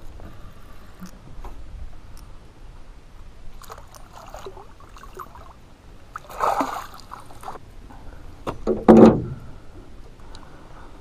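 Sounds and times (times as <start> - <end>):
water splashing: 3.5 - 7.6
landing net splash: 6.2 - 7.4.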